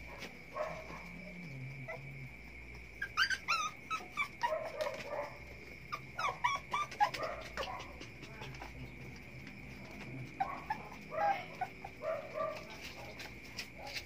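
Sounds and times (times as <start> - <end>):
puppies whimpering and yipping: 2.9 - 5.3, 5.9 - 9.3, 10.2 - 12.0.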